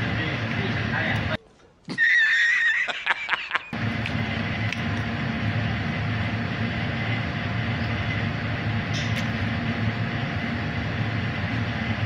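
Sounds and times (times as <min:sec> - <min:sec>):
kitchen machinery humming: 0:03.7 - 0:12.0.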